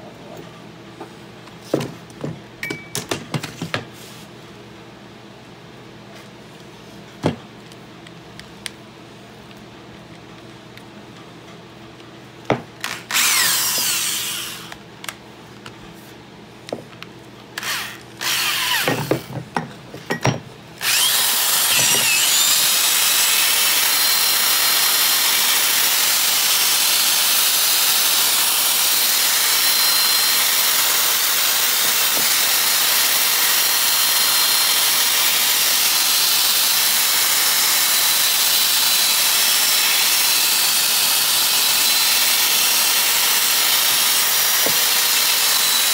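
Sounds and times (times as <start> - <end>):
power tool whining on metal: 12.8 - 14.8, 17.6 - 19.4, 20.8 - 45.9.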